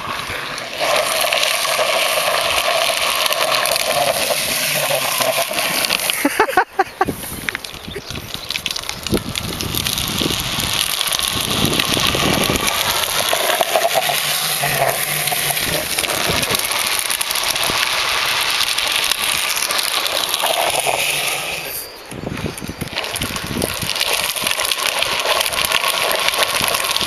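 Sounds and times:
wheels scraping on tarmac: 0.0s - 27.0s.

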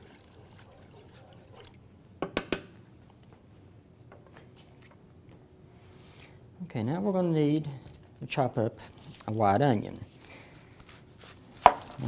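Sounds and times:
spoon stirring water: 0.0s - 1.8s
spoon knocking against pan: 2.2s - 2.7s.

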